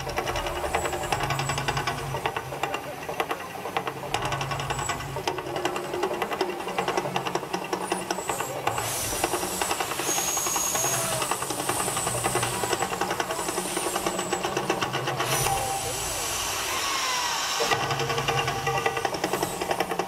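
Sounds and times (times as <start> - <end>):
fast dense rattling rhythm: 0.0 - 16.5, 17.6 - 20.0
rushing hiss of water jets: 8.6 - 20.0.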